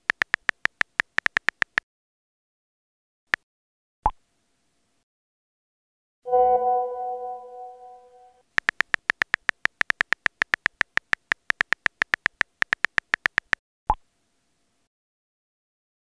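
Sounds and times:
smartphone keyboard taps: 0.0s - 1.8s, 8.6s - 13.6s
incoming message chime: 6.3s - 8.4s.

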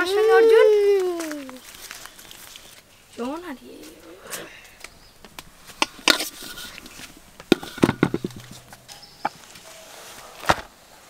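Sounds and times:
objects knocking and clattering: 5.2s - 9.7s.

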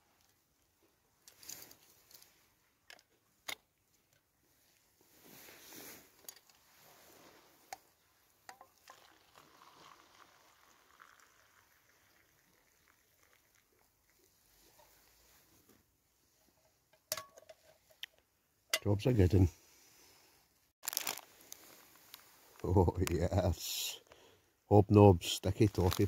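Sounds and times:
water poured into metal mug: 8.5s - 14.2s.

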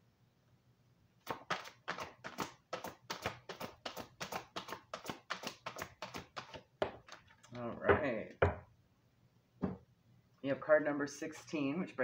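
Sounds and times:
cards being shuffled: 1.2s - 7.8s.

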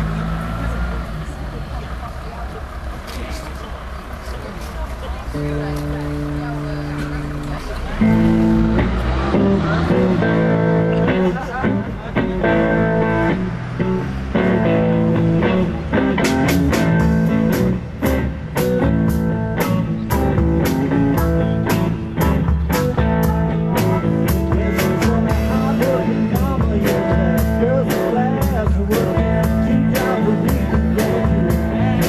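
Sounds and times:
electric guitar: 5.3s - 32.0s
drum kit: 14.5s - 32.0s.

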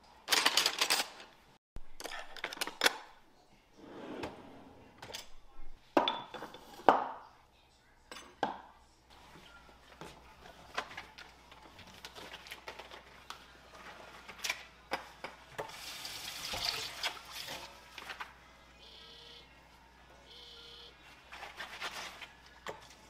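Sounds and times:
dishes clinking: 6.0s - 7.2s.

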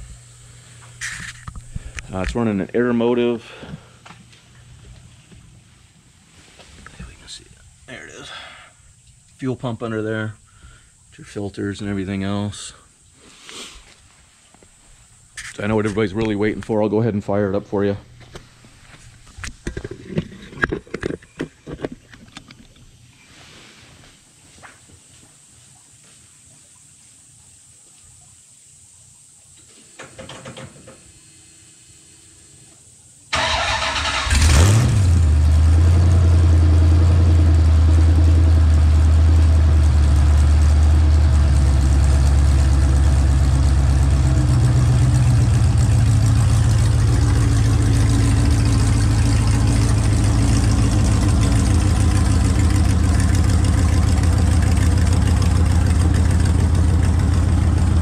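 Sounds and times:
short noise: 0.0s - 2.6s
starter motor cranking: 33.4s - 35.2s, 44.2s - 58.0s
engine revving then idling: 33.4s - 58.0s.

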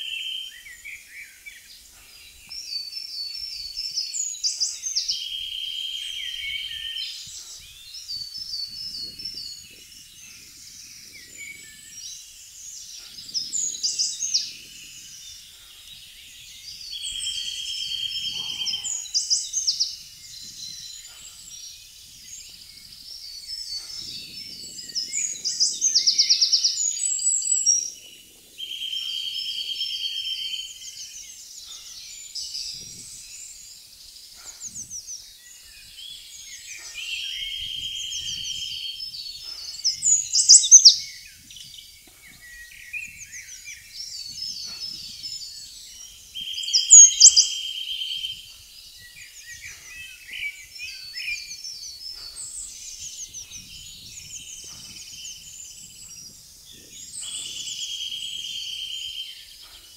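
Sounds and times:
birds singing: 0.0s - 59.9s
bird trilling: 17.4s - 19.7s, 40.2s - 41.0s, 46.5s - 47.6s.

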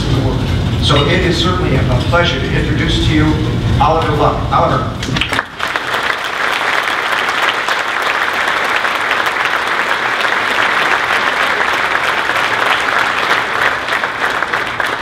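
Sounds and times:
audience applauding: 5.0s - 15.0s.

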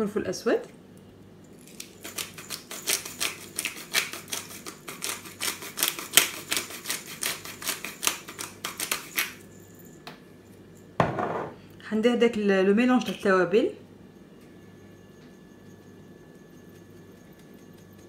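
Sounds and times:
pepper grinder clicking: 1.7s - 9.3s.

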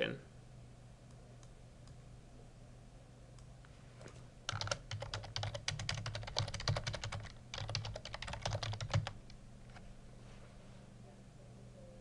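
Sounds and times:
typing on computer keyboard: 4.5s - 9.3s.

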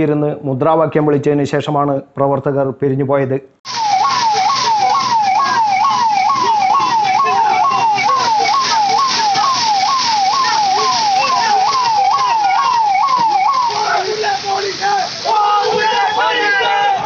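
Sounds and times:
police siren wailing: 3.7s - 17.0s
water cannon jet hiss: 3.7s - 17.0s.

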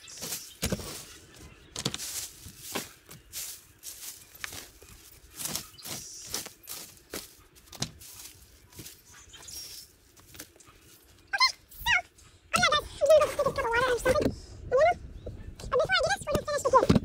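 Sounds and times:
dry leaves rustling and crunching: 0.0s - 11.2s.

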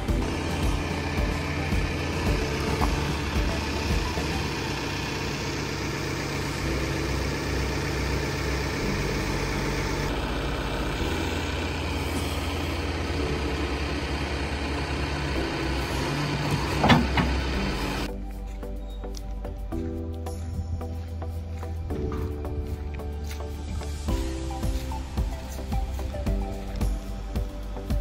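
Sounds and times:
backhoe digging into dirt: 0.0s - 6.5s, 7.2s - 18.1s
diesel engine running: 0.0s - 28.0s.

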